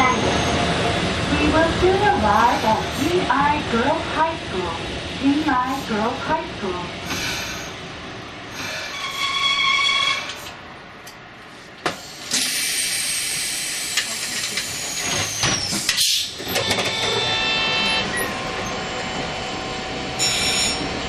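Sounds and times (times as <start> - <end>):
compressed air hissing: 12.0 - 14.2.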